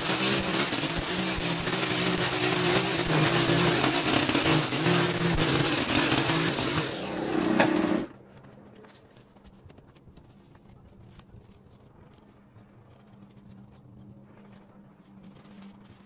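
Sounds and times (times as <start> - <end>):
small engine running: 0.0 - 8.1
rustling: 8.2 - 16.0.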